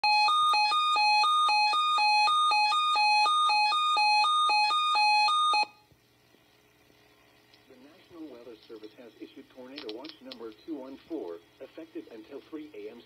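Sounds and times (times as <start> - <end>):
electronic two-tone alert: 0.0 - 5.8.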